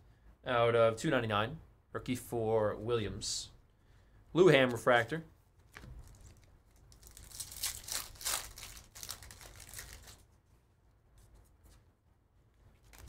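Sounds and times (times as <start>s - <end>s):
card pack wrapper crinkling and tearing: 5.7s - 10.3s, 12.8s - 13.0s.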